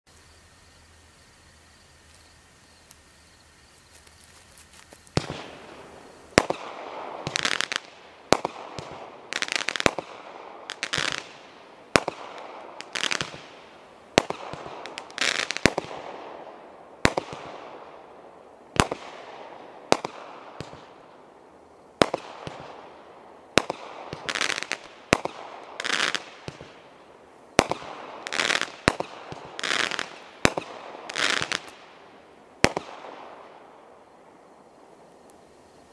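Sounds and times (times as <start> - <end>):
firework hissing bursts: 4.1 - 10.0
firework bangs: 5.0 - 18.0, 22.0 - 26.9, 27.5 - 32.0, 32.6 - 33.9.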